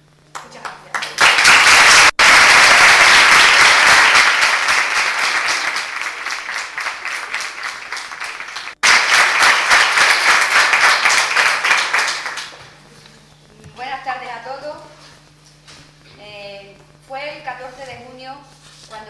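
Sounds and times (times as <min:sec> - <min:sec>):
audience applauding: 0:00.4 - 0:12.8.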